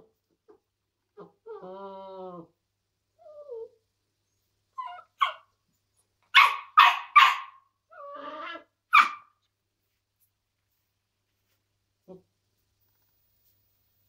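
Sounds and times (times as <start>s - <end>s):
puppy whining: 0.5s - 6.1s, 7.9s - 9.2s
puppy barking: 4.8s - 5.5s, 6.3s - 7.7s, 8.9s - 9.4s.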